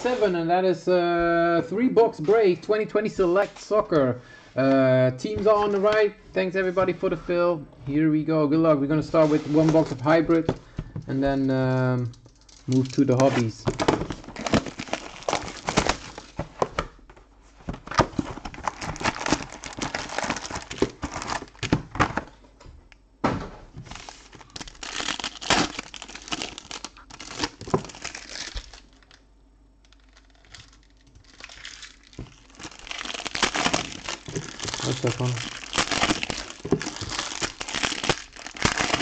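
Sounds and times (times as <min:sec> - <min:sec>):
plastic and foil crinkling: 0:12.3 - 0:16.7, 0:17.6 - 0:22.3, 0:23.8 - 0:29.2, 0:29.8 - 0:39.0.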